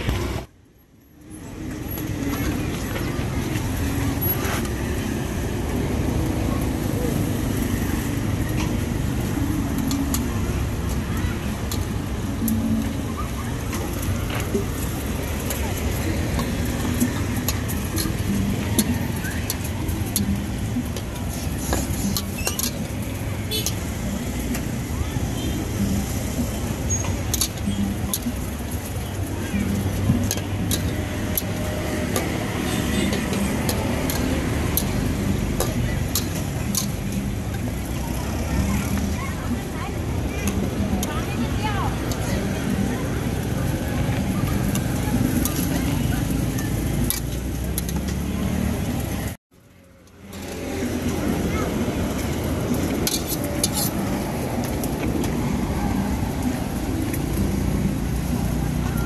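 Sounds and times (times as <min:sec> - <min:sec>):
low rumble of street traffic: 0:00.0 - 0:59.0.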